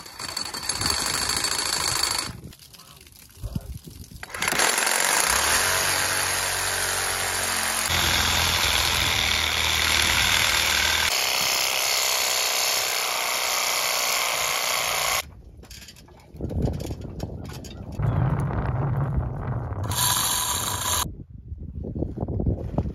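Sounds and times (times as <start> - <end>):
reciprocating saw cutting metal: 4.2 - 15.2, 19.8 - 21.1.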